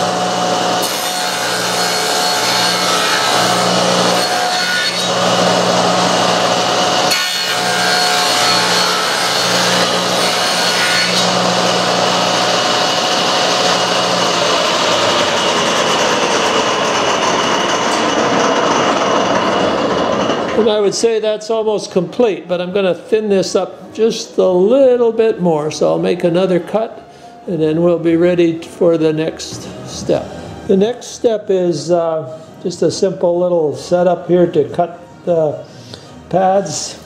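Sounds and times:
saw blade winding down whine: 0.0s - 20.6s
table saw cutting wood: 0.0s - 20.7s.

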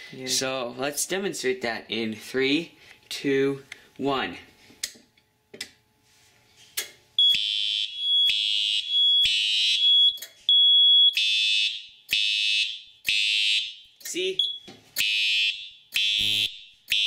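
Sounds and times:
fire alarm horn blasts: 7.2s - 17.0s.

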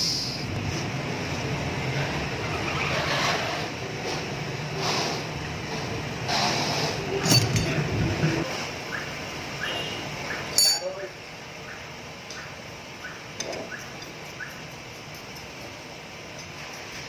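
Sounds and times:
sharp metallic clink: 10.6s - 11.0s.

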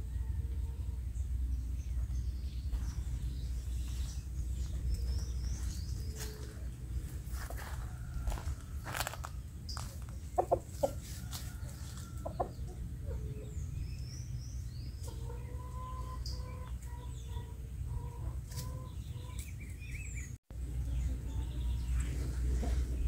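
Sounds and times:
small birds chirping: 0.5s - 23.0s
rooster clucking: 7.3s - 13.5s.

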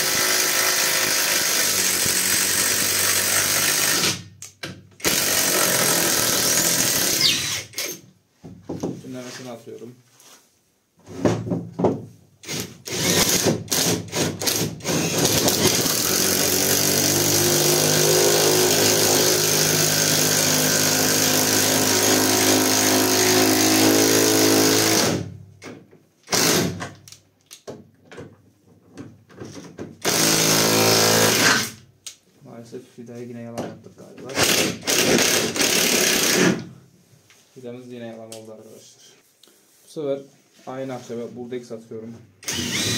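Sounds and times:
impact wrench driving a screw: 0.0s - 8.0s, 12.4s - 25.2s, 26.3s - 26.9s, 30.0s - 31.8s, 34.4s - 36.6s, 42.4s - 42.9s.

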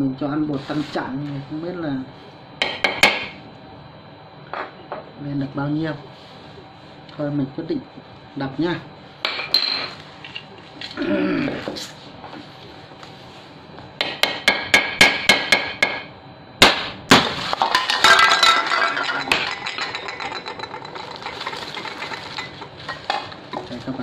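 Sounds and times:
shards and banknotes rustling: 17.7s - 24.0s.

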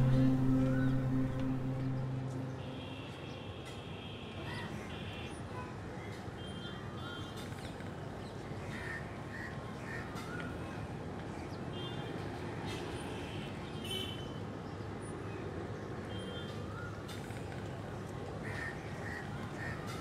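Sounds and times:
low background noise: 0.0s - 20.0s
crows cawing: 18.4s - 20.0s.

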